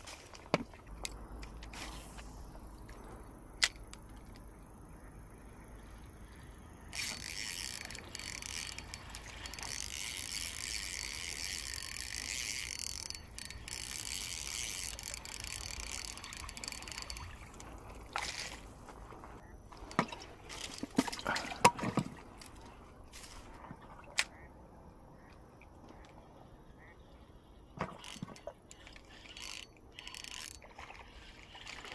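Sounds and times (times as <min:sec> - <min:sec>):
fishing reel whirring: 0:05.7 - 0:18.8, 0:28.0 - 0:31.9.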